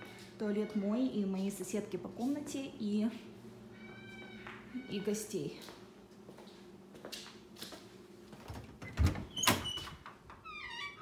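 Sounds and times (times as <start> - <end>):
door creaking: 8.4 - 11.0.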